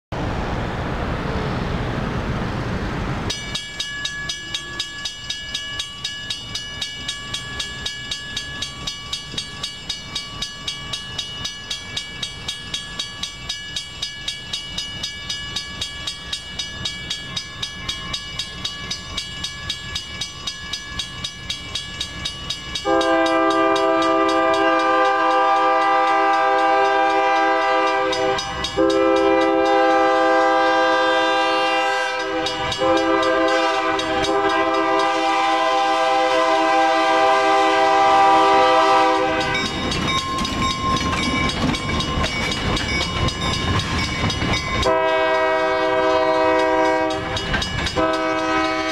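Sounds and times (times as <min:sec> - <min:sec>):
passing traffic: 0:00.1 - 0:48.9
railroad crossing bell ringing: 0:03.3 - 0:48.9
locomotive horn blast: 0:22.8 - 0:39.7, 0:44.8 - 0:47.4, 0:48.0 - 0:48.9.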